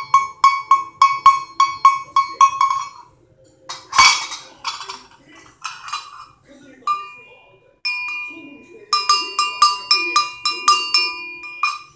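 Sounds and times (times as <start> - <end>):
cowbell ringing: 0.0 - 3.1, 5.6 - 6.2, 6.9 - 11.9
metallic clanking and clinks: 0.0 - 3.1, 3.7 - 7.3, 7.9 - 11.9.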